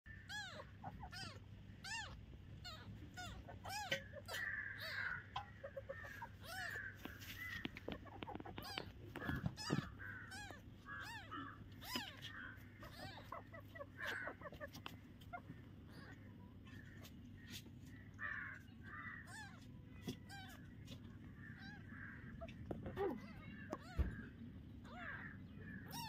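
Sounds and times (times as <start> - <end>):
kitten mewing: 0.2 - 6.9, 8.0 - 16.8.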